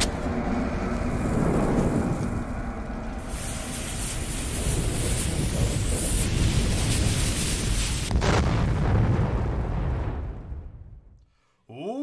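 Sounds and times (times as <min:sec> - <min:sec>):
low rumble: 0:00.0 - 0:11.2
lit fuse sizzling hiss: 0:03.2 - 0:08.1.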